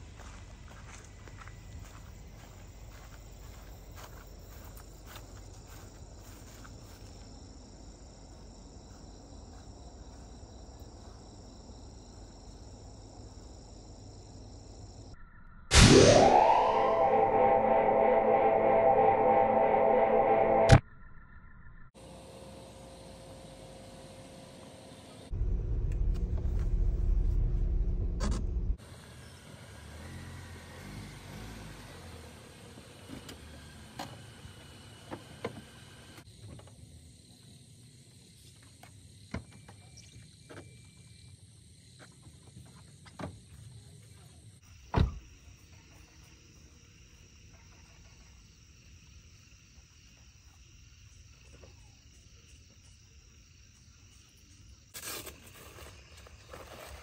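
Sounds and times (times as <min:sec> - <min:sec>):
insects chirping: 0:00.0 - 0:15.7, 0:34.2 - 0:57.0
car engine running low: 0:25.3 - 0:36.2.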